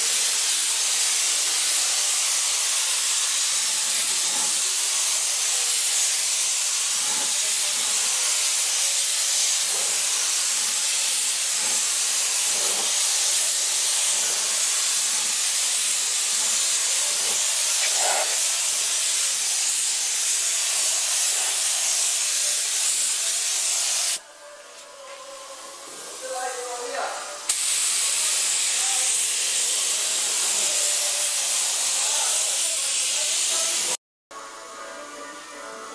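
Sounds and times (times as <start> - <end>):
spray gun hissing: 0.0 - 24.2, 26.1 - 34.0.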